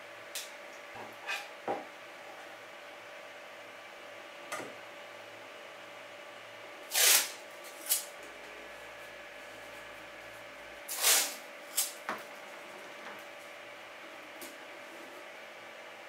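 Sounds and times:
masking tape ripped off roll: 0:06.9 - 0:08.1, 0:10.9 - 0:11.9.

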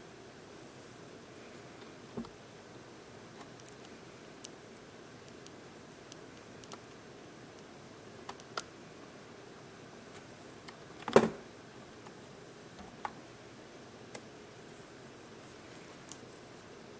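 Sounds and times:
faint room hum: 0:00.0 - 0:16.9.

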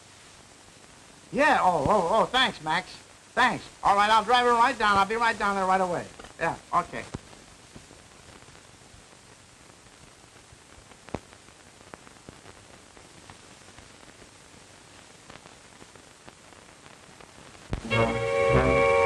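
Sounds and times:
old film soundtrack hiss: 0:00.0 - 0:19.0
orchestral music with brass: 0:17.9 - 0:19.0.

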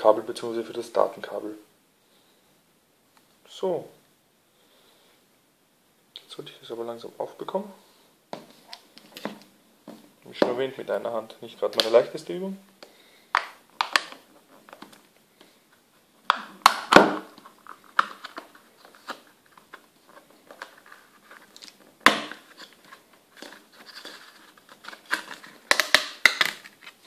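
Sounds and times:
plastic cover clips clicking: 0:24.8 - 0:27.0.

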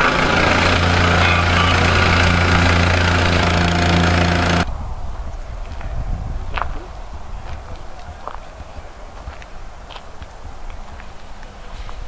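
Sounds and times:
plate compactor engine running: 0:00.0 - 0:04.7.

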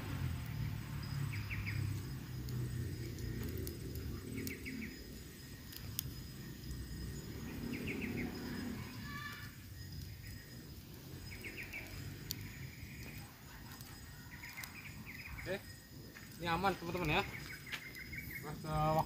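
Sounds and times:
high insect drone: 0:00.0 - 0:19.0
birds chirping: 0:00.1 - 0:19.0.

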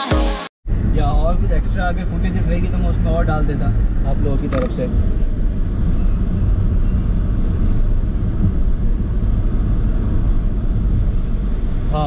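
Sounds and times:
car interior road rumble: 0:00.7 - 0:12.0.

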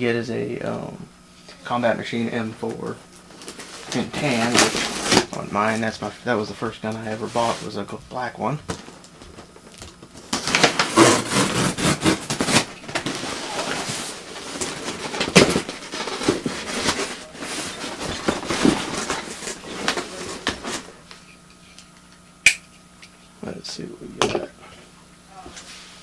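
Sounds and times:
packing tape ripping: 0:03.4 - 0:05.3, 0:09.7 - 0:20.9
cardboard flaps scraping and crinkling: 0:03.4 - 0:05.9, 0:07.1 - 0:07.8, 0:10.2 - 0:21.0.

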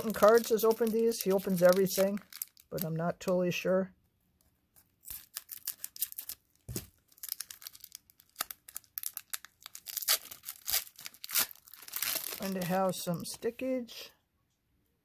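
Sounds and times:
wrapper tearing and crinkling: 0:00.0 - 0:03.0, 0:05.0 - 0:12.9.

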